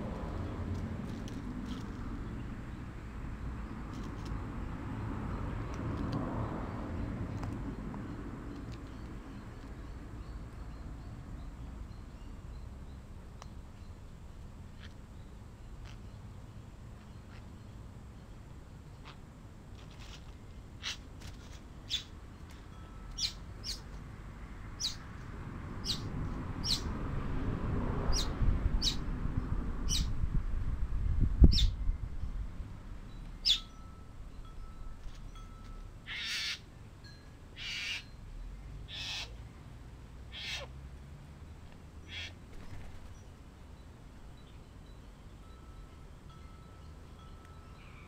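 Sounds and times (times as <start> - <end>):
bird calling: 36.1 - 36.6, 37.6 - 38.2, 38.9 - 39.4, 40.3 - 40.7, 42.0 - 42.4.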